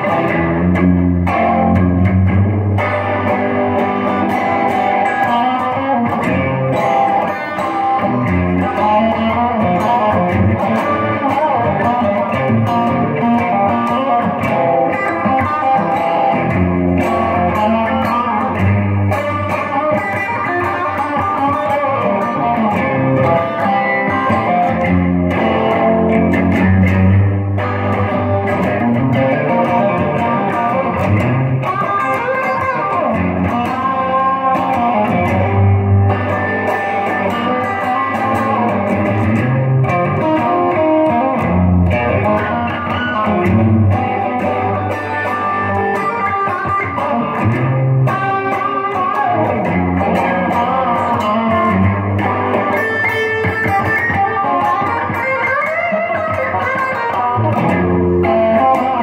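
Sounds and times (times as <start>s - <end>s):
electric guitar playing notes and chords: 0.0s - 59.0s.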